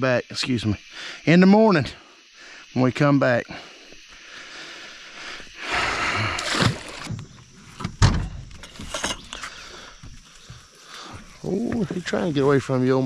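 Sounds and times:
water splashing: 5.9s - 7.2s.

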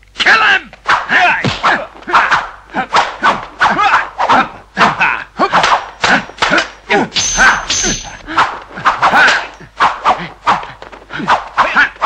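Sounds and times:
fighters yelling: 0.2s - 9.6s.

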